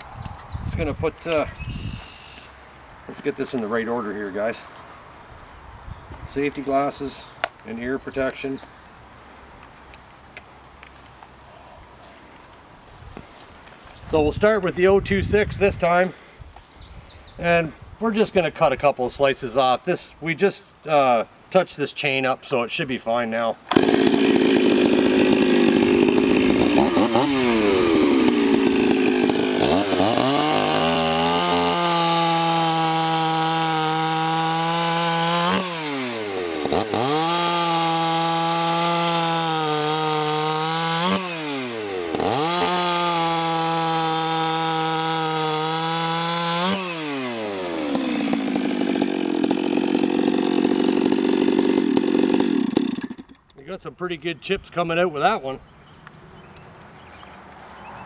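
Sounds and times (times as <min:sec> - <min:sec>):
chainsaw cutting log: 0:23.7 - 0:53.5.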